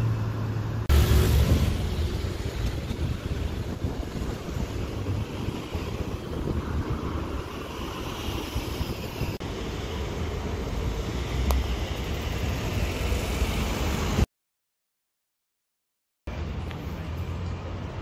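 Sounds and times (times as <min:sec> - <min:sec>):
passing traffic rumble: 0:00.0 - 0:14.3.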